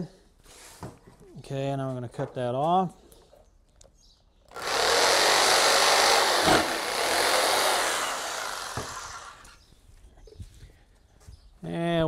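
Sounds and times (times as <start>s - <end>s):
jigsaw cutting wood: 4.5s - 9.6s.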